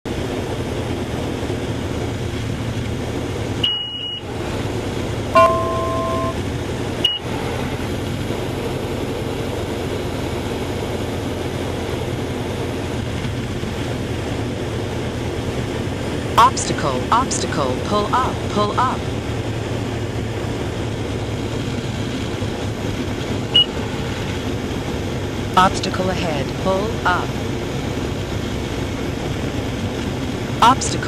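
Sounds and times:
aircraft engine and propeller drone: 0.1 - 31.0
short high beep: 3.6 - 4.2, 5.4 - 6.4
two-note electronic tone: 5.4 - 6.4.

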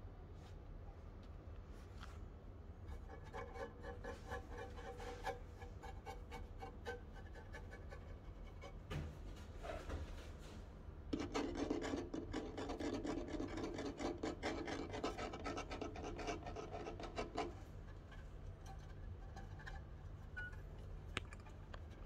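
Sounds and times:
kitten claws scratching on wood: 2.9 - 8.9, 11.2 - 22.0.

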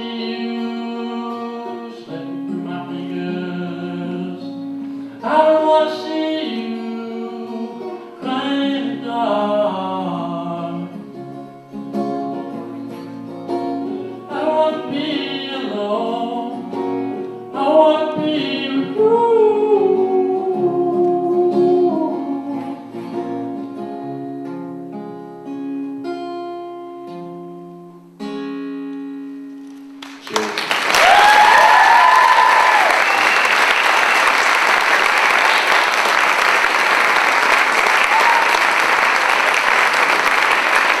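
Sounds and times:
person singing: 0.0 - 11.3, 13.9 - 23.4
acoustic guitar plucked notes: 0.0 - 30.4
audience applause: 30.0 - 41.0
audience cheering and whooping: 30.6 - 41.0.

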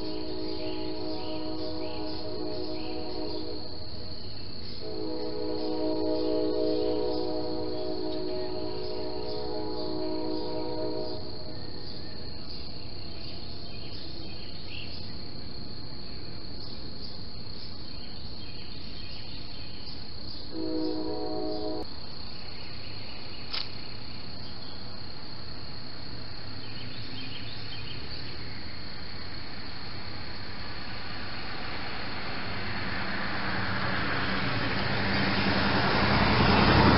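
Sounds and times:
high-pitched insect-like trill: 0.0 - 14.3
click: 23.5 - 23.8.

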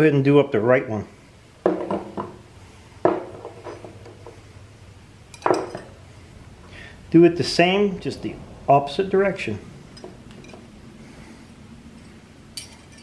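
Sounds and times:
metal screws and washers clinking: 5.3 - 6.0, 9.9 - 10.7, 11.9 - 13.0.

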